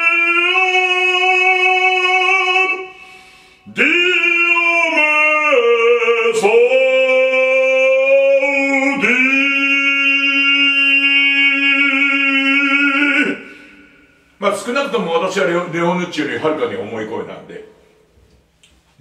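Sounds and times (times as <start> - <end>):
man singing operatically: 0.0 - 3.0, 3.6 - 14.0
singer breathing: 2.9 - 3.7, 13.4 - 14.4.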